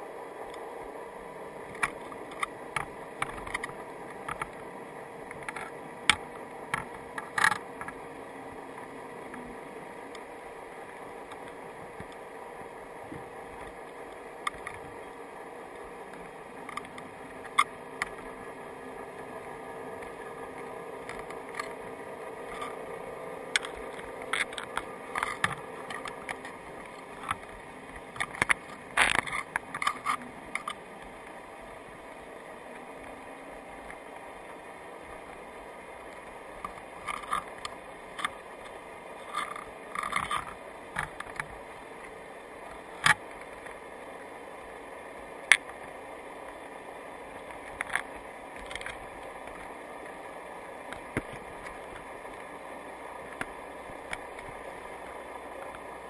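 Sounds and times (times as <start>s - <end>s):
underwater hum and hiss: 0.0s - 56.0s
crab clicking and scraping: 1.6s - 8.1s, 13.1s - 31.4s, 36.0s - 43.8s, 45.4s - 45.8s, 47.4s - 56.0s.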